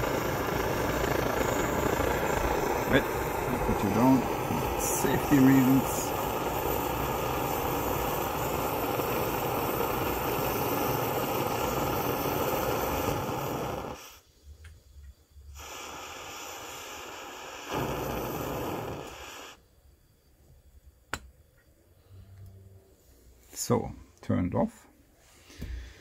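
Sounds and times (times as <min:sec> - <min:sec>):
camping stove burner rushing: 0:00.0 - 0:14.3, 0:15.5 - 0:19.6.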